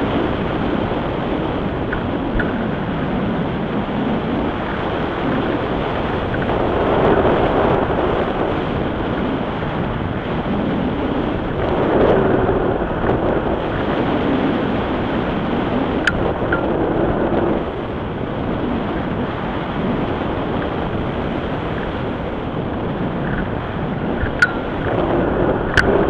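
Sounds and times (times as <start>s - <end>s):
wind roar on microphone: 0.0s - 26.0s
sharp click: 24.2s - 24.6s.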